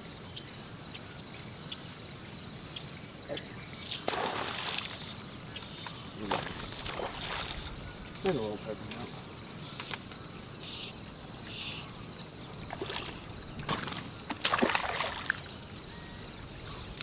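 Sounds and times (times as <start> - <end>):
fish splashing in shallow water: 3.9 - 8.4, 12.6 - 17.0.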